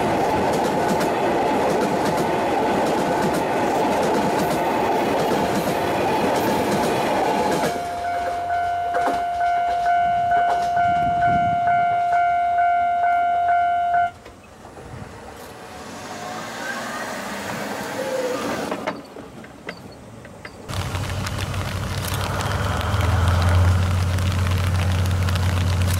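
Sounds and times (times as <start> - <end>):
train wheels rumbling on rails: 0.0 - 12.3, 14.2 - 25.9
level crossing bell ringing: 7.8 - 14.1.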